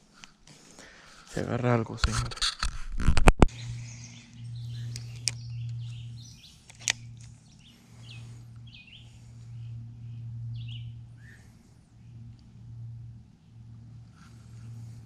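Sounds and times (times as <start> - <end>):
steady low hum: 0.0 - 15.0
small birds chirping: 3.5 - 15.0
sharp clicks: 4.8 - 5.9, 6.6 - 7.4.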